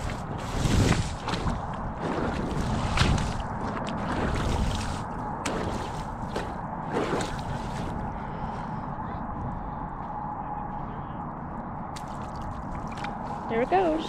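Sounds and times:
slushy ice and water sloshing: 0.0 - 8.0, 12.0 - 14.0
wind rumble on microphone: 0.0 - 14.0.

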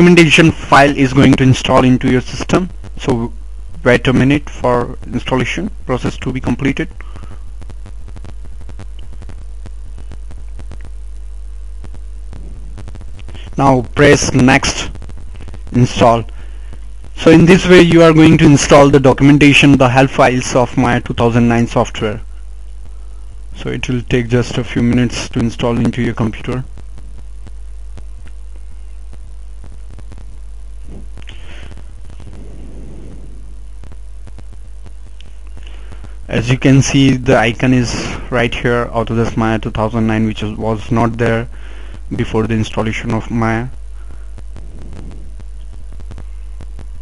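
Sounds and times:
electrical mains hum: 0.0 - 47.0
breathy noise: 6.9 - 8.3, 12.2 - 13.6, 16.3 - 17.0, 30.8 - 33.8, 35.2 - 36.3, 41.5 - 42.1, 43.9 - 46.6
faint crackling clicks: 6.9 - 11.0, 11.8 - 13.5, 26.8 - 32.5, 33.8 - 36.3, 44.0 - 47.0
faint clicks: 8.2 - 9.4, 35.1 - 36.1.

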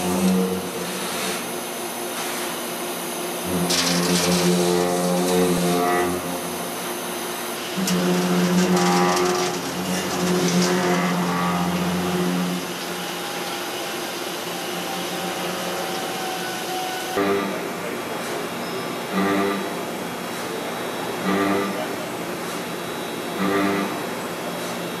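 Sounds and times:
milling spindle whine: 3.4 - 17.2.

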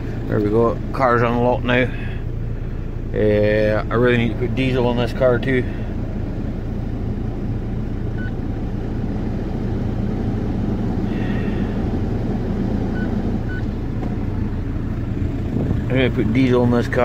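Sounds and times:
diesel engine idling: 0.0 - 17.0.

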